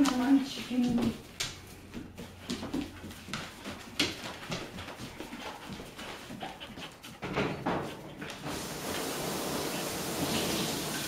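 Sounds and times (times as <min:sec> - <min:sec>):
paws clicking on tile floor: 0:00.0 - 0:09.1
dog panting: 0:01.8 - 0:08.5
steady hiss: 0:08.4 - 0:11.0.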